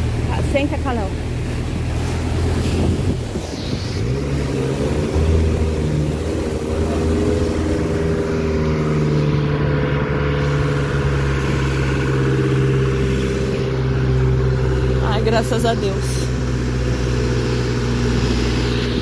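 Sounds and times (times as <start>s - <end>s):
rain: 0.0s - 15.0s
rushing water: 0.0s - 19.0s
van engine pulling: 0.0s - 19.0s.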